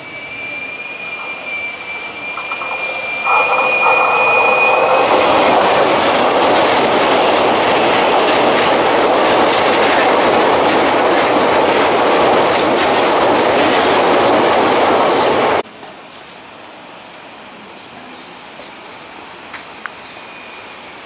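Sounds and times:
high thin tone: 0.0 - 9.5
train wheels rushing on rail: 0.0 - 21.0.

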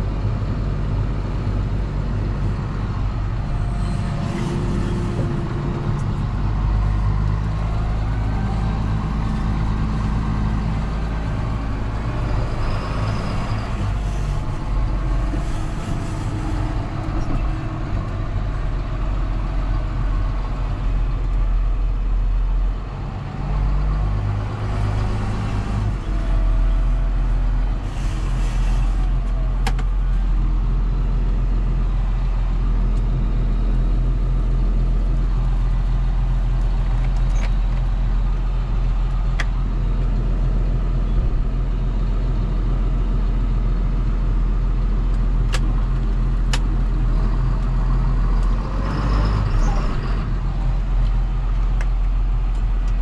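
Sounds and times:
tractor diesel engine under load: 0.0 - 53.0.

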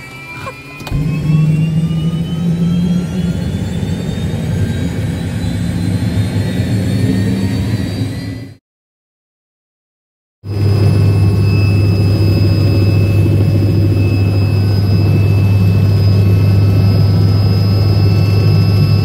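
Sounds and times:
loud low drone: 0.0 - 8.6, 10.4 - 19.0
turbine whine rising: 0.0 - 8.6, 10.5 - 19.0.

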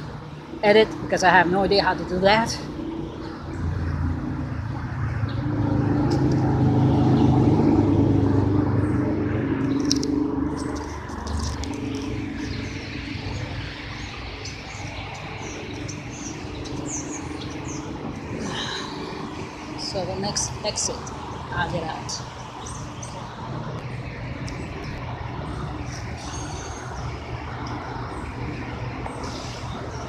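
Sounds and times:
birds chirping: 0.0 - 30.0
traffic passing: 0.0 - 30.0.

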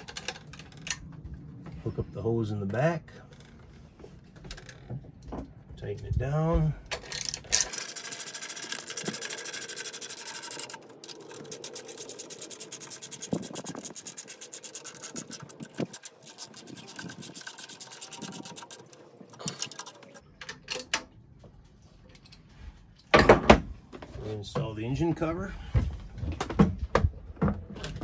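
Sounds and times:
ratchet wrench clicking: 7.1 - 20.2.

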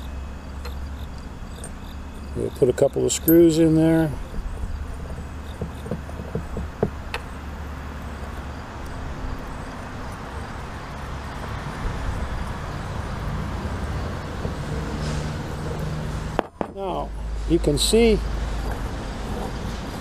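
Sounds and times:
road traffic: 0.0 - 20.0
vehicle passing: 6.5 - 20.0.

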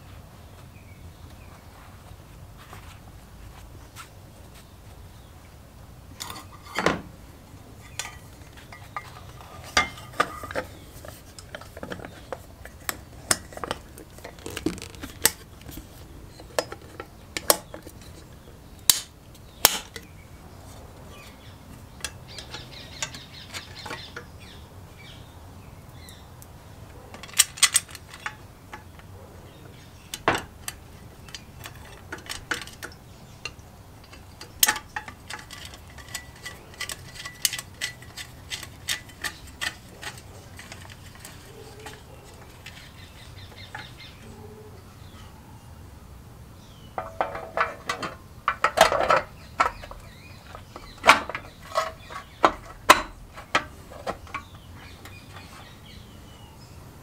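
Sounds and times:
metal engine parts clinking: 6.2 - 7.0, 7.8 - 18.3, 21.1 - 24.6, 26.9 - 44.4, 46.8 - 56.4.

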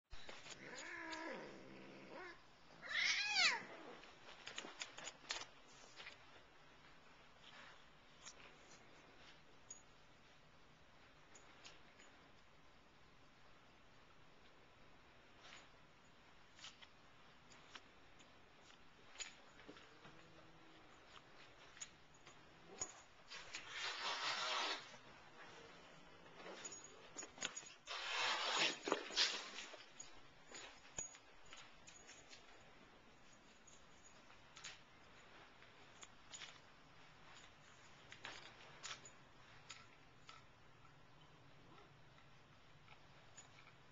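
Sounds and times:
cat yowling: 2.1 - 3.7.

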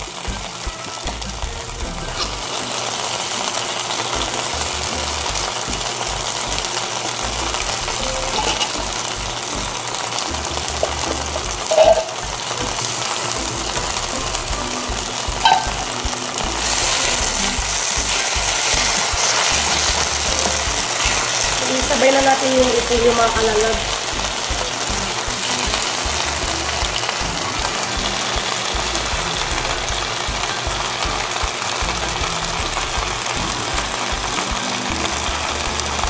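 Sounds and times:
food sizzling in a wok: 0.0 - 36.0
wooden spatula stirring: 11.7 - 26.2.

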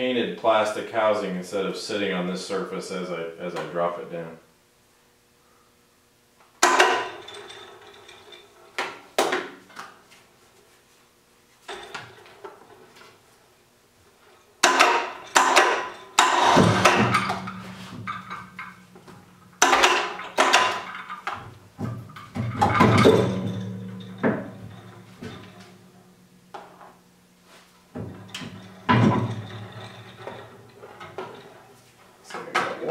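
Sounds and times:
metal turret clunks and knocks: 14.6 - 26.8, 28.0 - 31.6.

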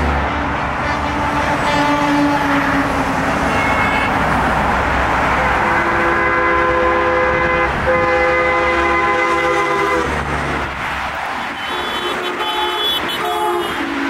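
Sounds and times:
convoy traffic passing: 0.0 - 14.0
vehicle horn long blast: 1.0 - 2.9, 3.5 - 4.1, 5.4 - 10.1, 11.6 - 13.8.

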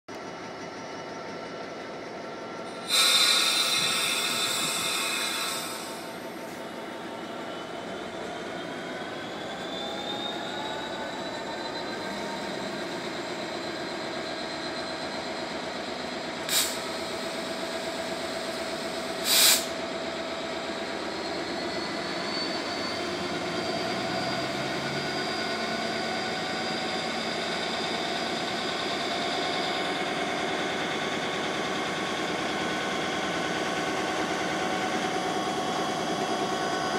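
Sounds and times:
diesel locomotive engine running: 0.1 - 36.9
loud hiss: 2.8 - 6.2, 16.5 - 16.9, 19.1 - 19.8.

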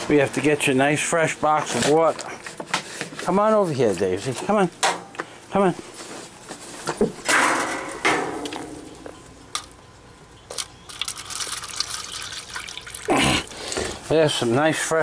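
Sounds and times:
water pouring and splashing: 10.6 - 13.4.

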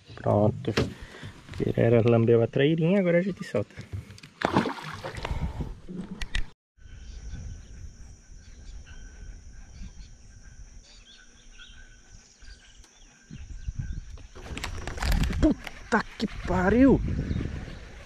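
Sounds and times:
bird chirps: 6.8 - 14.3
high insect drone: 6.8 - 18.0.

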